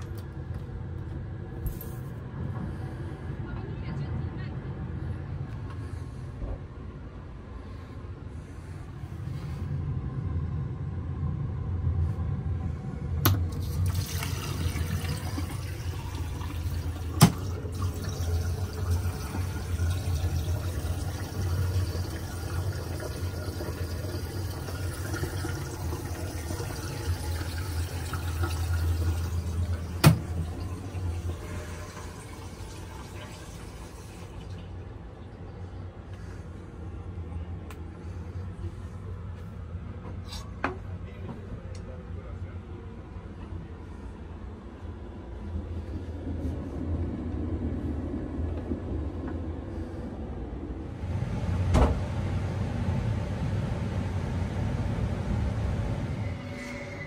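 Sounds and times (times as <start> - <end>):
low rumble: 0.0 - 13.8, 42.7 - 57.0
water running: 13.3 - 34.9.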